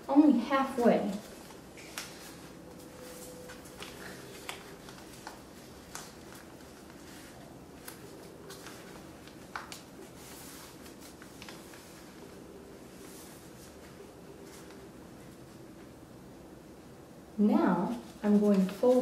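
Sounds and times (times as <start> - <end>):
faint steady hum: 0.0 - 19.0
paper folding and creasing: 1.2 - 14.9.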